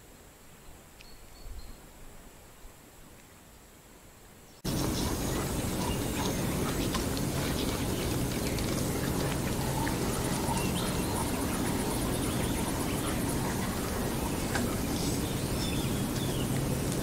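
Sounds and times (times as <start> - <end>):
rushing floodwater: 4.7 - 17.0
faint bird chirps: 8.8 - 16.6.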